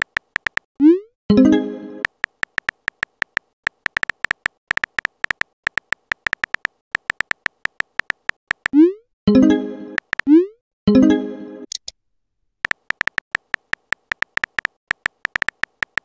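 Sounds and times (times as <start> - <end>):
keyboard ticks: 0.0 - 1.0, 2.0 - 8.9, 10.0 - 10.4, 12.6 - 16.0.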